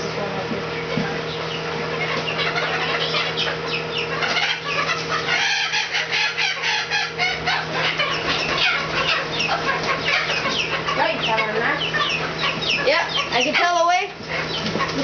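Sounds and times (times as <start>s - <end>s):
chicks peeping and clucking: 0.0s - 15.0s
steady low hum: 0.0s - 15.0s.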